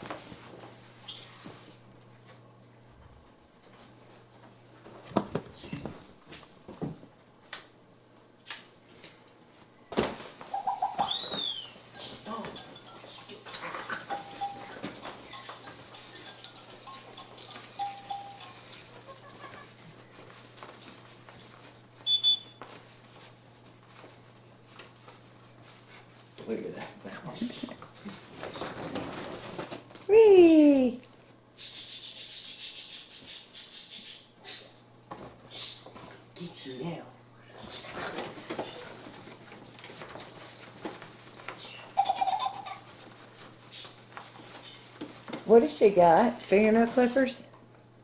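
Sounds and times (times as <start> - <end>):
faint rustling and handling: 8.9 - 31.3, 37.6 - 47.4
baby monkey call: 41.6 - 42.8.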